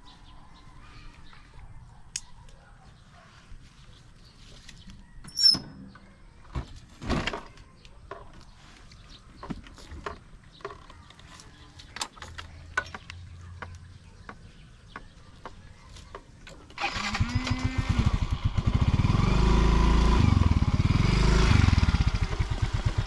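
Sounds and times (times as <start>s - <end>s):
high squeak: 5.3s - 5.9s
scooter clicks and knocks: 9.4s - 17.6s.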